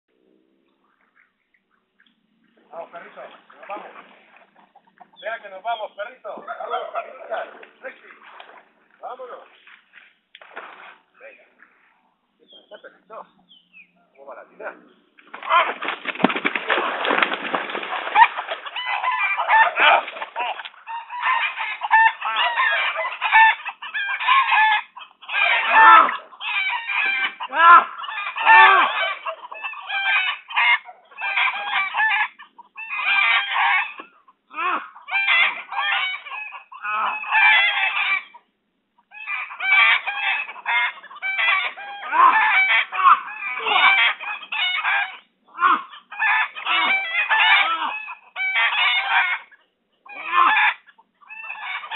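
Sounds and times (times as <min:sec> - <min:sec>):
chickens clucking: 0:00.2 - 0:09.7, 0:10.4 - 0:51.9
roosters crowing: 0:15.4 - 0:38.4, 0:39.0 - 0:49.5, 0:50.1 - 0:51.9.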